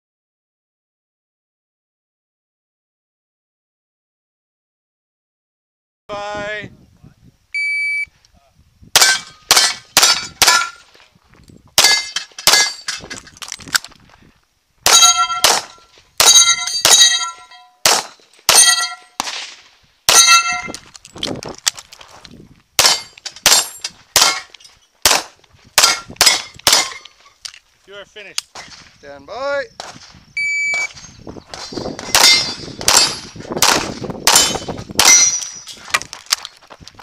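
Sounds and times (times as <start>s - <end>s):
pistol shots: 9.0s - 10.8s, 14.9s - 20.5s, 22.8s - 27.1s, 30.7s - 35.4s
steel target ringing: 14.9s - 19.2s, 20.1s - 20.8s, 30.7s - 33.4s, 34.3s - 35.8s.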